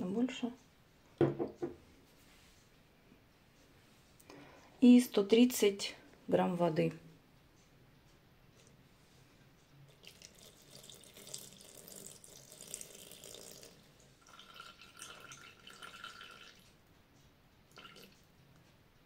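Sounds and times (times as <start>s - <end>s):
water pouring into a bowl: 9.9s - 16.7s, 17.7s - 18.2s.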